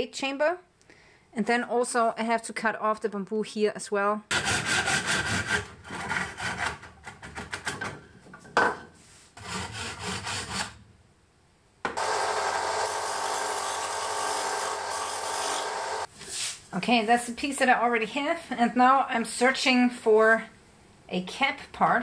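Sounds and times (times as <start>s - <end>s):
hand saw cutting bamboo: 4.3s - 6.8s, 9.4s - 10.8s, 12.7s - 16.1s
belt sander running: 12.0s - 16.1s.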